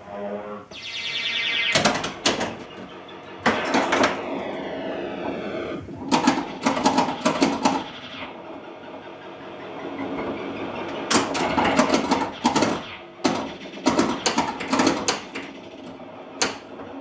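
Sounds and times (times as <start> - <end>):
pinball electronic sound effects: 0.6 - 17.0
pinball flippers clacking: 11.1 - 16.8.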